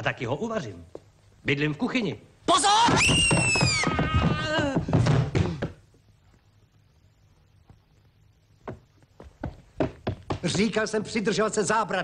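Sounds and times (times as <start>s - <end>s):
person crying out: 2.6s - 4.9s
body thumping down wooden stairs: 2.9s - 5.8s, 8.6s - 10.7s.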